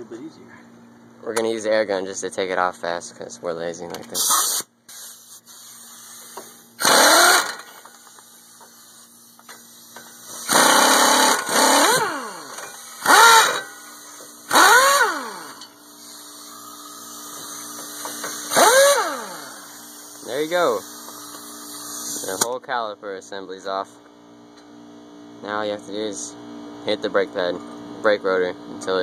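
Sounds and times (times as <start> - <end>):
impact wrench whining: 6.1 - 8.8, 9.4 - 22.5.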